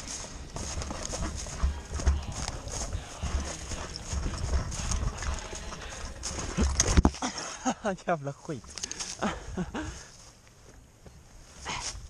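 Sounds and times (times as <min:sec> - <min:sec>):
running footsteps on grass: 0:00.0 - 0:12.0
kit rattling: 0:00.5 - 0:07.2.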